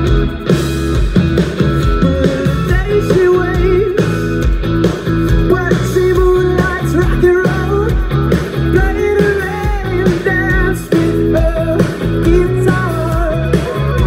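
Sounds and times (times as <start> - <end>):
bass guitar: 0.0 - 14.0
drums: 0.0 - 14.0
electric guitar: 0.0 - 14.0
person singing: 2.0 - 4.3, 5.3 - 14.0.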